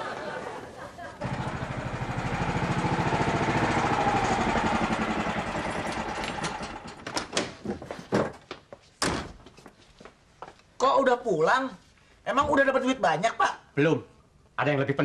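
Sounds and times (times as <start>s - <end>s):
motorcycle engine running: 1.2s - 7.0s.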